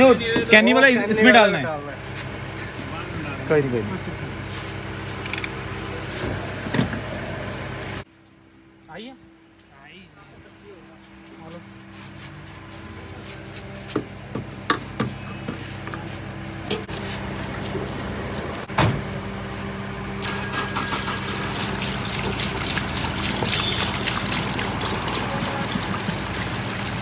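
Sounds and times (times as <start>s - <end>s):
engine hum: 0.0s - 9.6s, 10.2s - 27.0s
fuel splashing through funnel: 20.2s - 27.0s.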